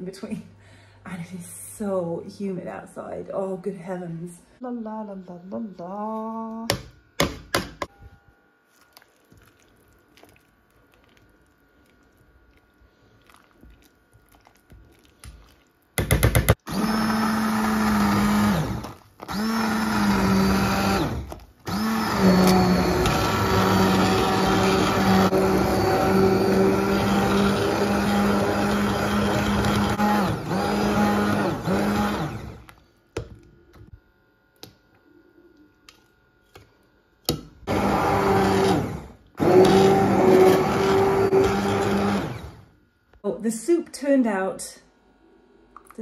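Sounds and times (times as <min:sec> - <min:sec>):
stick blender whirring: 0:14.6 - 0:32.8, 0:37.3 - 0:42.8.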